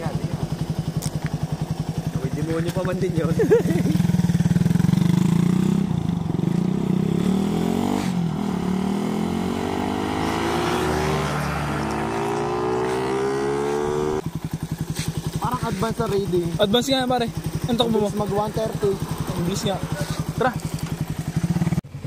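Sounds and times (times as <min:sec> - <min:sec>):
motorcycle engine revving hard: 0:03.1 - 0:15.5, 0:16.9 - 0:22.0.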